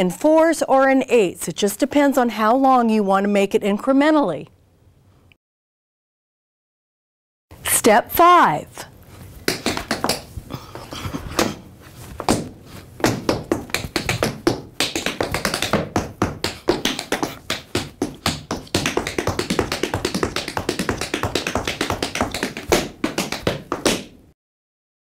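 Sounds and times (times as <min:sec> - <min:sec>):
tap shoes on wooden floor: 0:09.4 - 0:10.3, 0:12.2 - 0:24.1.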